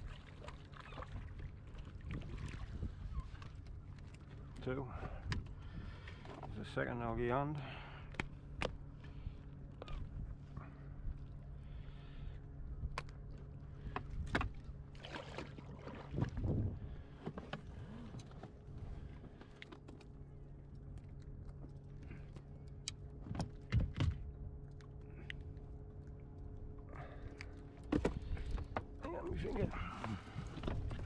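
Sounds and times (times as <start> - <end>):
knocks clicks and rustles in dinghy: 0.0 - 6.7, 12.8 - 31.0
outboard motor humming: 0.0 - 31.0.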